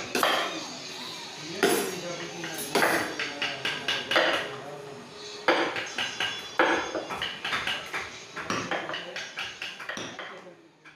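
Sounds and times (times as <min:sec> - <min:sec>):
mallets striking chisels into wood: 0:00.1 - 0:00.5, 0:01.6 - 0:04.5, 0:05.5 - 0:10.9.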